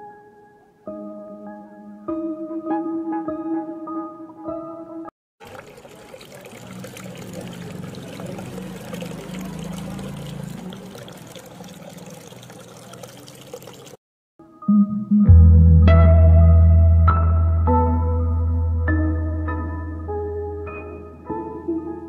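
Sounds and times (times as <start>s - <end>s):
rushing splashing water: 5.4s - 14.0s.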